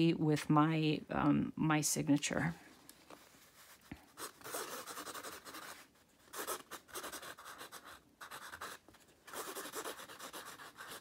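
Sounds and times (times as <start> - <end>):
marker scratching on canvas: 4.1 - 11.0.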